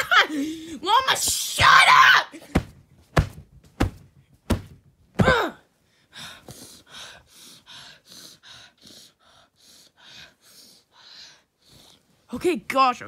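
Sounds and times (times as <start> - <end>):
person gasping: 0.2 - 0.8
person crying out: 5.2 - 5.6.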